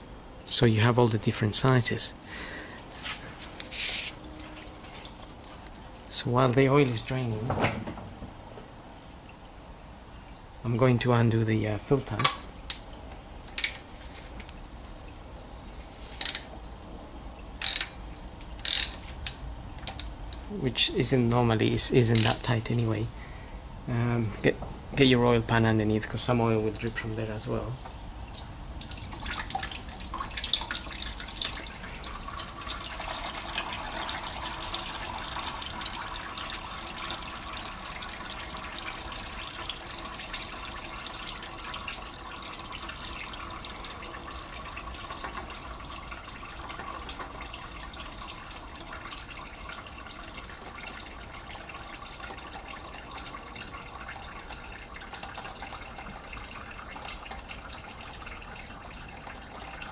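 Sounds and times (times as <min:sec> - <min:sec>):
oil pouring into drain pan: 0:28.2 - 0:59.9.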